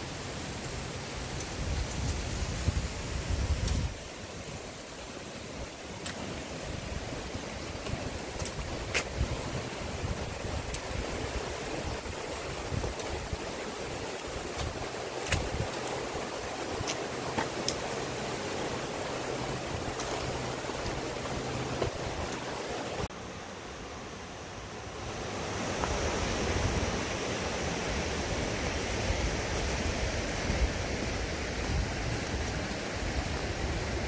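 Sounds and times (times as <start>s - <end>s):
mountain stream rushing: 0.0s - 34.0s.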